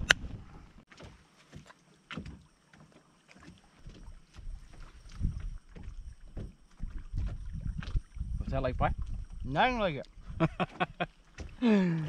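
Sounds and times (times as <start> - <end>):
wind buffeting microphone: 0.0 - 0.8, 4.6 - 11.0.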